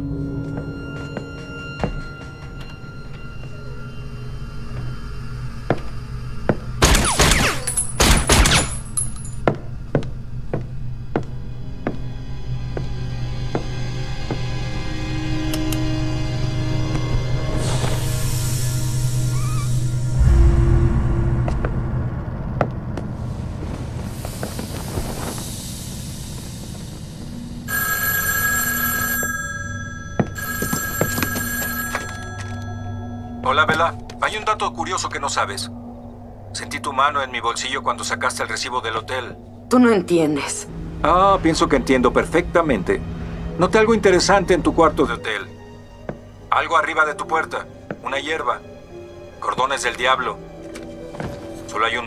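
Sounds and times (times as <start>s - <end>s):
low music drone: 0.0s - 27.7s, 32.2s - 52.0s
desk telephone ringing: 27.7s - 33.6s.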